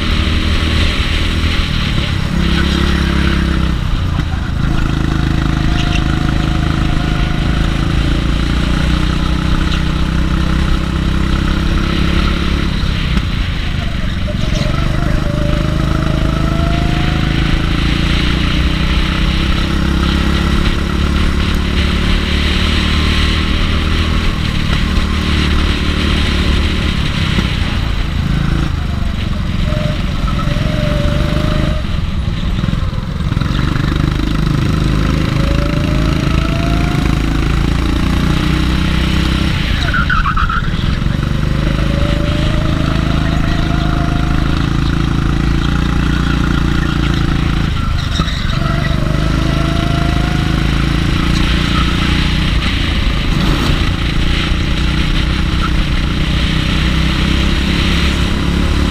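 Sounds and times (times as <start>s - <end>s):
go-kart engine revving: 0.0s - 58.9s
high squeal: 39.0s - 52.6s.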